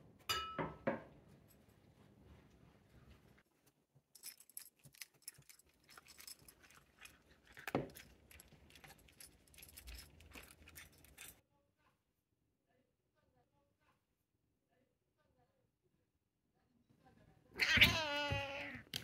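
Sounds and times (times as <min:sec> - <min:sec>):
small hard objects clinking: 0:04.2 - 0:11.4.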